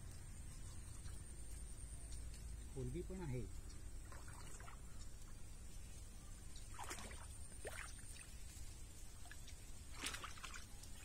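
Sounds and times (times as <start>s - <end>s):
water sloshing and splashing: 3.5s - 11.0s.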